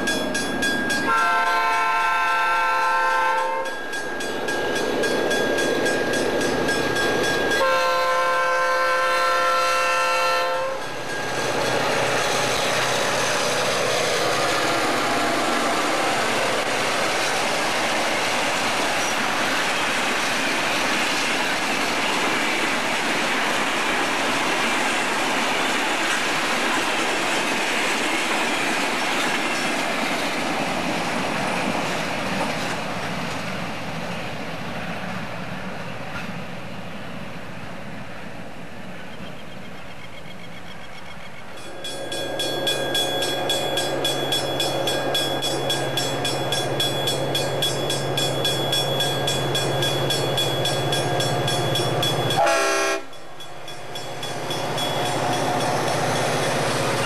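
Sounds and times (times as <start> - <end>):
freight train wheels on rails: 0.0 - 57.0
locomotive horn blasts: 1.1 - 3.8, 7.6 - 10.8, 52.3 - 53.2.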